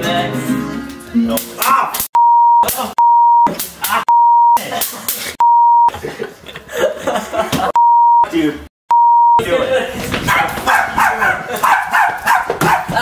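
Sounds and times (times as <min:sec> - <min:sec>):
person shouting: 0:01.6 - 0:02.0
high censor beep: 0:02.2 - 0:03.5, 0:04.1 - 0:04.6, 0:05.4 - 0:05.9, 0:07.8 - 0:08.2, 0:08.9 - 0:09.4.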